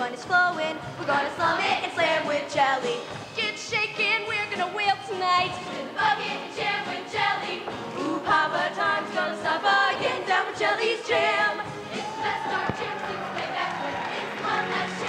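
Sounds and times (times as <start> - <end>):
female lead voices singing: 0.0 - 15.0
choir singing: 5.7 - 15.0.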